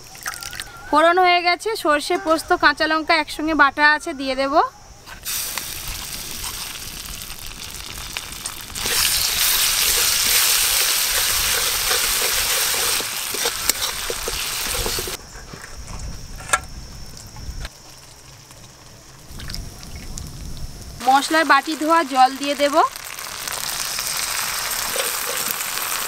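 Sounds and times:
paste sizzling in hot oil: 5.2 - 15.2, 20.9 - 26.0
metal spatula stirring in wok: 8.8 - 15.2.

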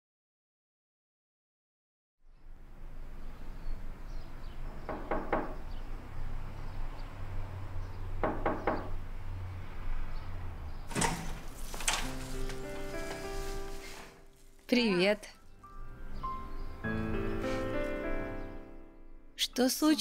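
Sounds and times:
knuckles knocking on wooden door: 4.9 - 5.6, 8.2 - 9.0.

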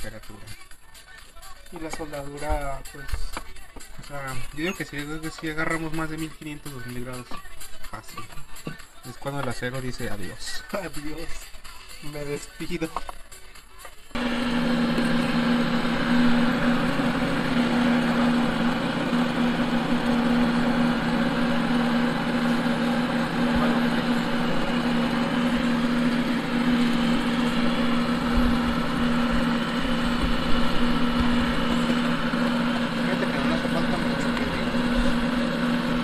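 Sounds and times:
air blower humming: 1.7 - 7.4, 14.2 - 36.0.

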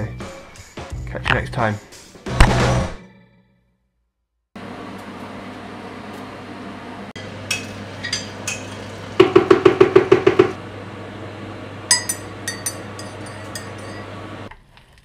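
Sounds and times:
steady hum: 4.6 - 14.5
teaspoon clinking in ceramic mug: 11.9 - 14.1.

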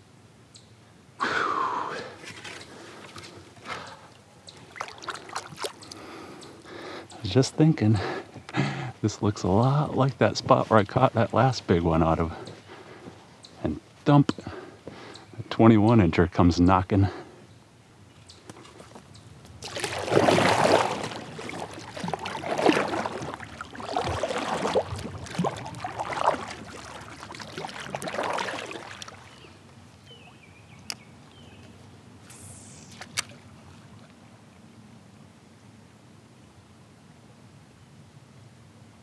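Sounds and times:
paddle strokes sloshing in water: 2.2 - 7.0, 18.4 - 30.5, 32.9 - 34.4.

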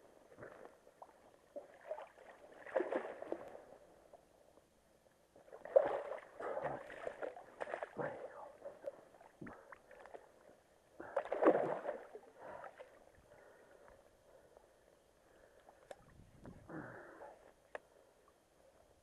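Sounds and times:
water sloshing and splashing: 0.3 - 3.8, 5.5 - 10.4, 11.0 - 13.0.

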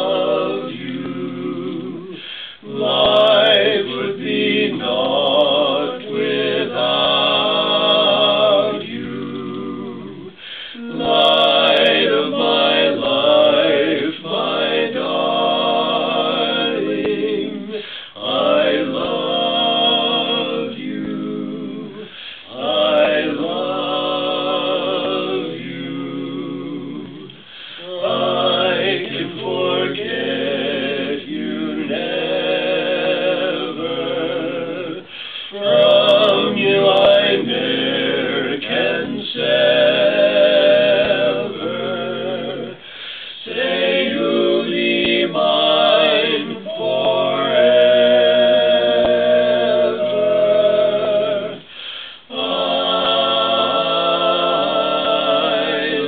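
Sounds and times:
vocal quartet singing a cappella: 0.0 - 56.0.

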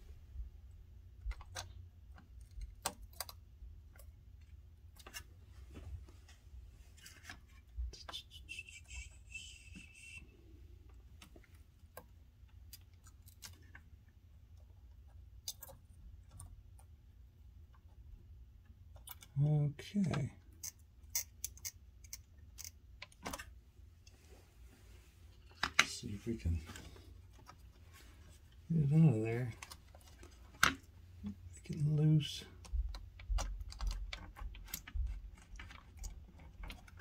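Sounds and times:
low steady hum: 0.0 - 37.0
faint clicks and taps: 10.8 - 17.0, 32.5 - 37.0.

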